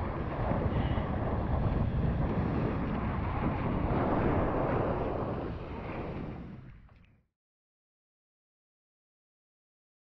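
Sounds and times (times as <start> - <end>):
wind buffeting microphone: 0.0 - 7.1.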